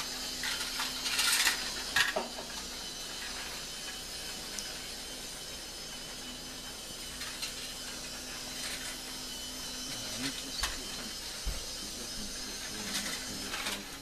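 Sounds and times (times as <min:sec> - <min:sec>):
toy train rattling on track: 0:00.0 - 0:04.8, 0:07.1 - 0:11.4, 0:12.2 - 0:14.0
toy train motor humming: 0:00.0 - 0:14.0
toy train clicks: 0:00.4 - 0:02.2, 0:12.9 - 0:13.8.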